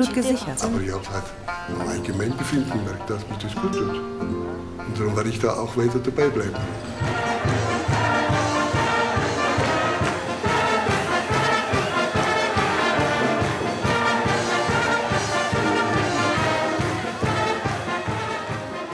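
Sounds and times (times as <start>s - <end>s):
orchestral music with brass: 4.9s - 18.9s.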